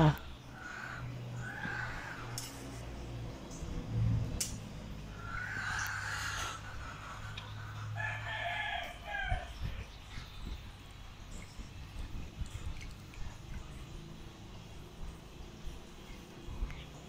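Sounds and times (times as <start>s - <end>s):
low steady hum: 0.0s - 17.0s
rooster crowing: 7.8s - 9.6s.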